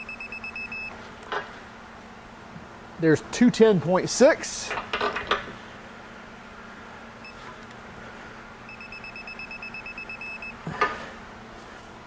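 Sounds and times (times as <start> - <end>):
torque wrench beeping: 0.0 - 0.9, 8.7 - 10.6.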